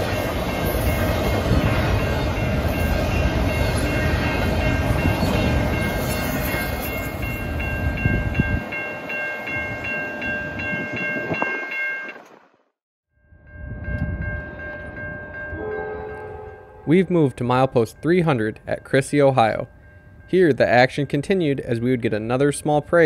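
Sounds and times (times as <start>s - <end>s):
freight train rumbling and rattling: 0.0s - 12.4s
pulsing high ring: 13.2s - 21.2s.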